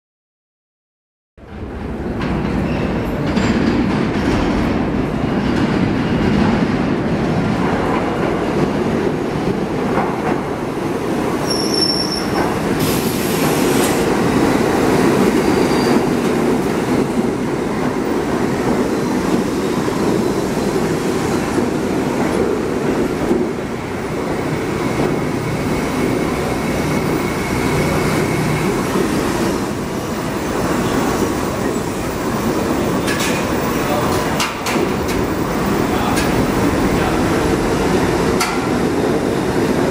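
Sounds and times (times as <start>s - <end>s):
train wheels rumbling on rail: 1.4s - 39.9s
high wheel squeal: 11.4s - 13.0s, 15.4s - 16.1s.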